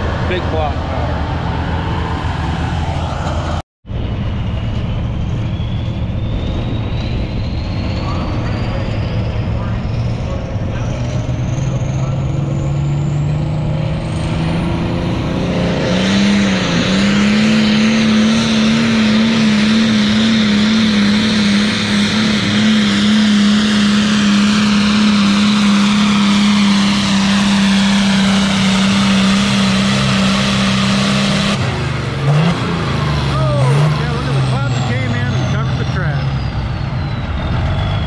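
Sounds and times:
tractor diesel engine under load: 0:00.0 - 0:38.0.

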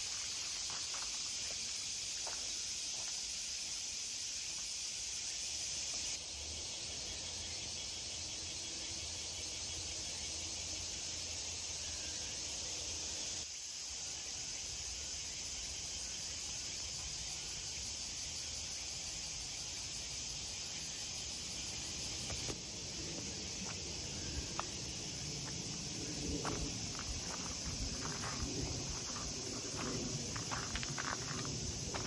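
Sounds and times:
insects chorus: 0:00.0 - 0:32.0
footsteps on gravel: 0:23.2 - 0:32.0.

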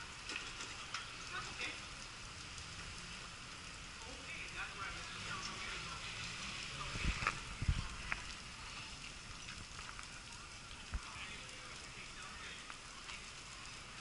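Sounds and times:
fire hissing and crackling: 0:00.0 - 0:14.0.

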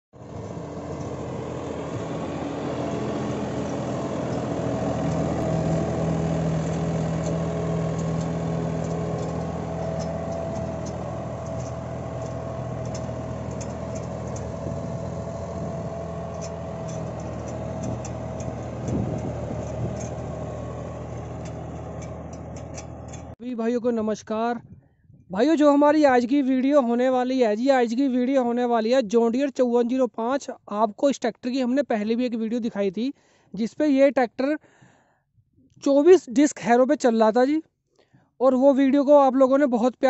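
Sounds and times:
tractor diesel engine running: 0:00.1 - 0:23.4
steady mechanical whine: 0:00.2 - 0:23.4.

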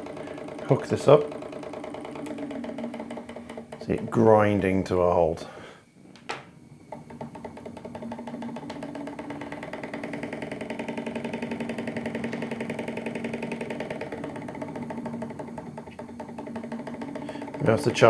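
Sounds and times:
steady hum: 0:00.0 - 0:18.0
engine mechanical clatter: 0:07.8 - 0:18.0.

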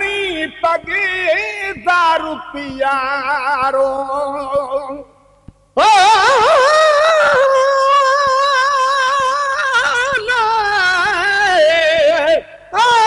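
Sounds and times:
person singing a long note: 0:05.8 - 0:13.0.

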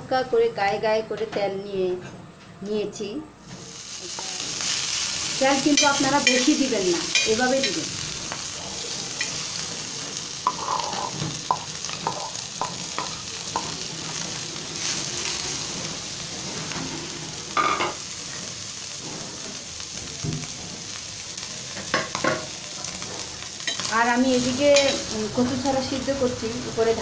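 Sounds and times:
fish sizzling in a pan: 0:03.5 - 0:27.0.

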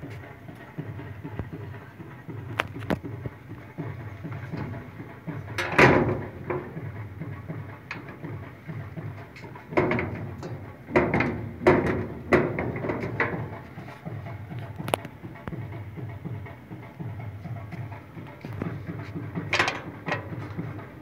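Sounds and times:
metal gate clanking and rattling: 0:03.9 - 0:15.0, 0:17.8 - 0:21.0.

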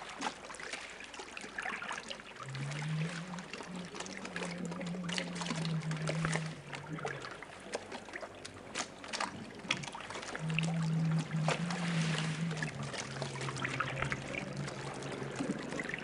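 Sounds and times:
water splashing around boats: 0:00.0 - 0:16.0
low steady hum: 0:02.2 - 0:16.0.

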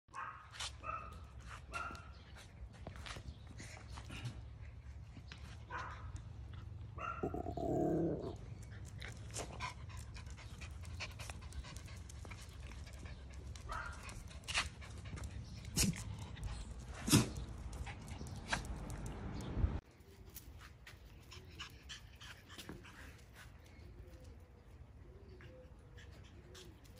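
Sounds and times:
dogs panting: 0:08.4 - 0:19.3, 0:25.2 - 0:26.9.

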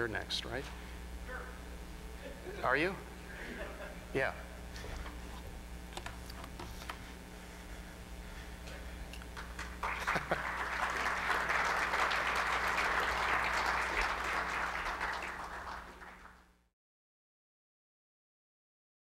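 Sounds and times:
steady low hum: 0:00.0 - 0:16.7
audience applauding: 0:09.4 - 0:16.5.

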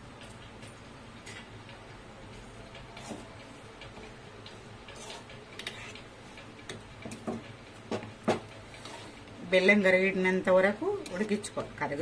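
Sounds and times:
spoon stirring thick mixture: 0:02.3 - 0:10.1
spoon scraping metal pot: 0:04.9 - 0:06.1.

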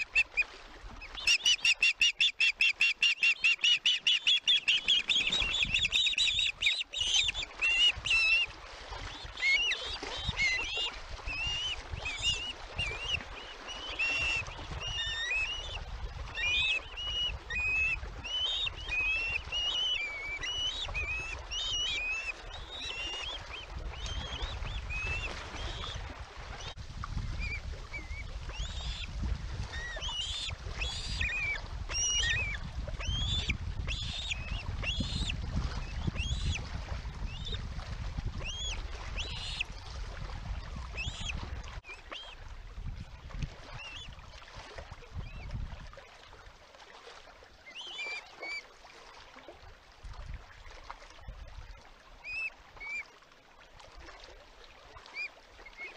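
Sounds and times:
ospreys chirping: 0:01.2 - 0:08.4, 0:29.8 - 0:35.3.

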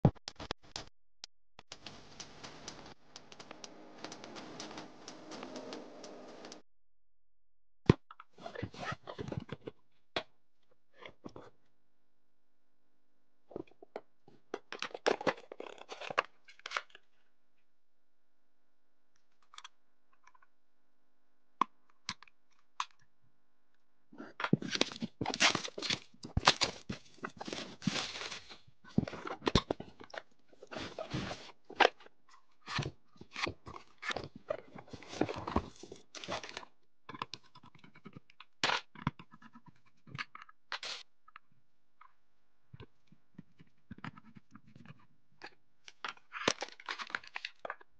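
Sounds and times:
sharp clicks: 0:01.6 - 0:06.6
plastic and paper crinkling: 0:24.6 - 0:31.6.

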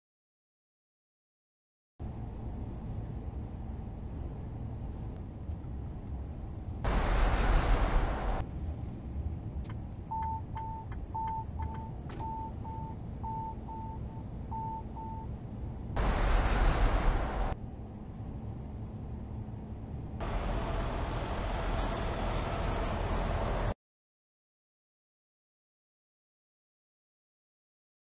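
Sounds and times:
truck cab rumble: 0:06.9 - 0:15.3
warning beeps: 0:10.1 - 0:15.3
bursts of rushing noise: 0:16.0 - 0:17.6.

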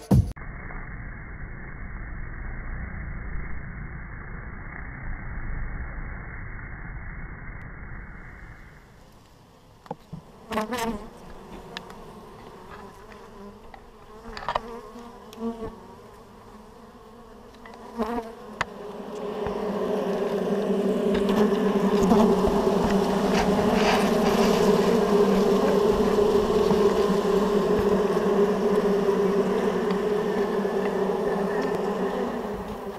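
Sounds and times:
honeybees buzzing: 0:08.4 - 0:32.9.

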